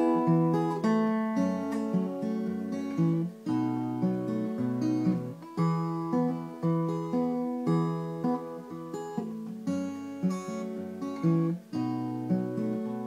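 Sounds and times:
acoustic guitar picked chords: 0.0s - 13.0s.

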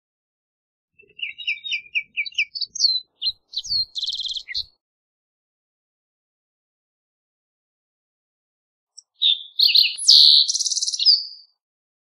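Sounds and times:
bird song with buzzy trill: 1.0s - 4.7s, 9.0s - 11.6s.

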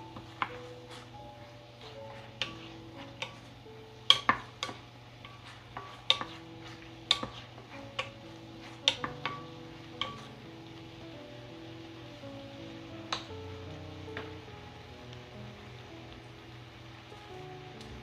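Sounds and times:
background music: 0.0s - 18.0s
wooden spatula knocking on pan: 4.1s - 10.3s.

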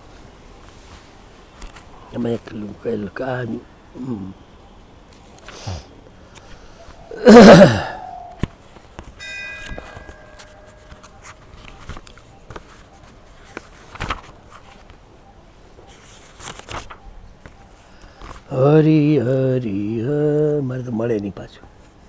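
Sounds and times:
faint bell-like chime: 9.2s - 11.3s.

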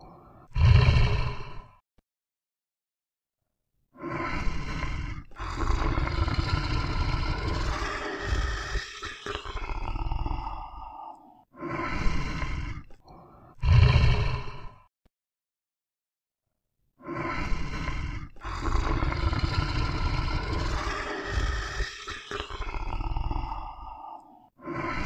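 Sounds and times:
animal roars: 0.5s - 1.8s, 4.0s - 12.9s, 13.6s - 14.9s, 17.1s - 25.0s.

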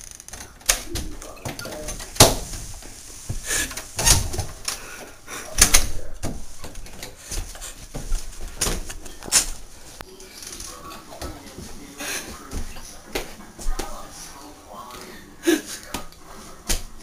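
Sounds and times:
front door shutting: 3.6s - 4.8s.

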